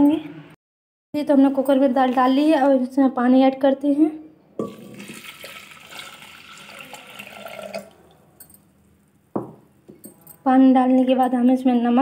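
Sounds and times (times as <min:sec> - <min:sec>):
water pouring into pot: 0:04.6 - 0:08.2.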